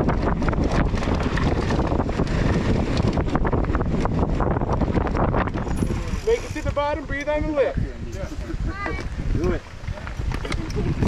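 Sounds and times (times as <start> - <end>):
bike rattling over rough ground: 0.0 - 11.0
wind buffeting microphone: 0.0 - 11.0.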